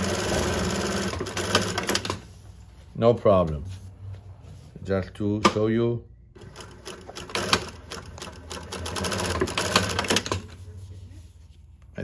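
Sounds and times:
sewing machine stitching: 0.0s - 2.2s, 6.4s - 10.6s.

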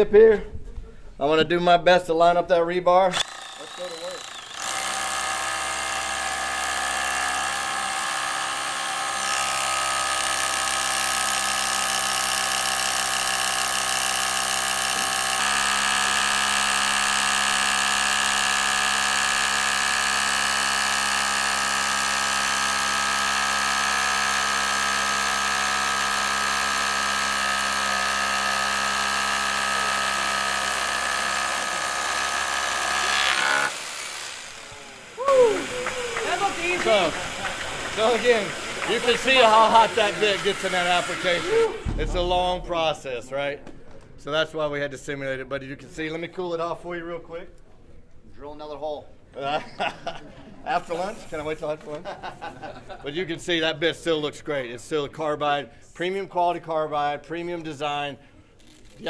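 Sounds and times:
rotary hammer drilling into concrete: 3.1s - 42.1s.

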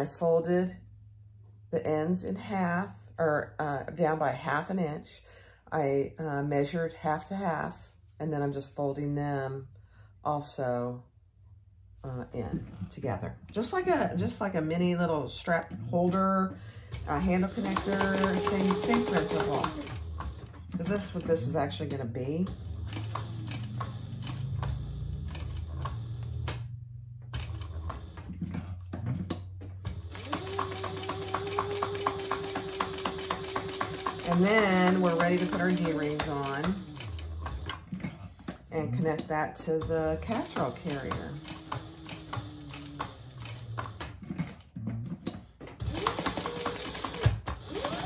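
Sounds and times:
sewing machine stitching: 16.0s - 26.5s, 27.3s - 28.6s, 29.9s - 44.7s, 45.8s - 48.0s.

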